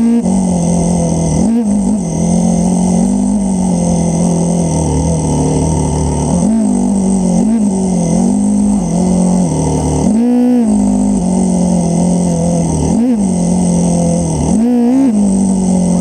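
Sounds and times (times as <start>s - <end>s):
motorcycle engines running: 0.0s - 16.0s
motorcycle throttle blips: 0.0s - 16.0s.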